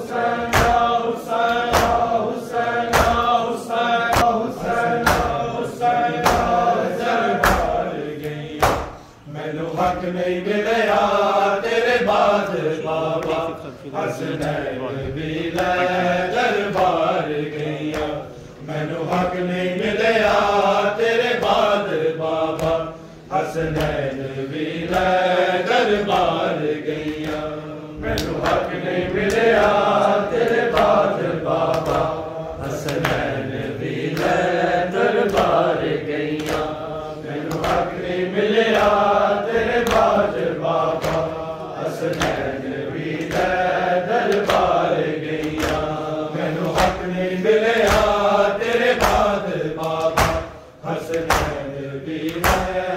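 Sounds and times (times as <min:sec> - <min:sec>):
men chanting a lament: 0:00.0 - 0:52.9
hands slapping bare chests: 0:00.4 - 0:02.2, 0:02.9 - 0:03.4, 0:04.1 - 0:05.4, 0:06.1 - 0:09.2, 0:16.6 - 0:18.2, 0:19.0 - 0:19.4, 0:21.3 - 0:22.9, 0:23.6 - 0:24.2, 0:25.9 - 0:38.0, 0:39.7 - 0:52.9.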